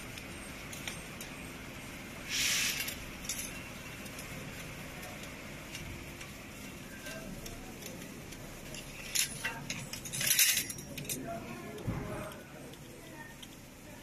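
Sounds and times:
metal parts scraping: 2.2 - 4.3, 8.6 - 11.4.

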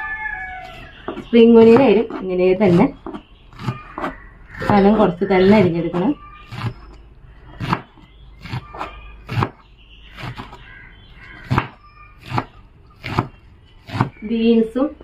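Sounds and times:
knife chopping on a board: 7.6 - 9.6, 11.4 - 14.2.

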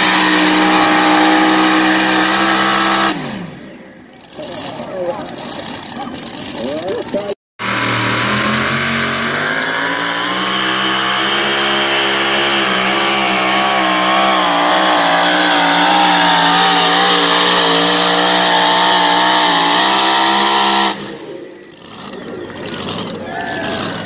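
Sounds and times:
engine at full throttle: 0.0 - 24.0
sled dragging down track: 21.6 - 24.0.

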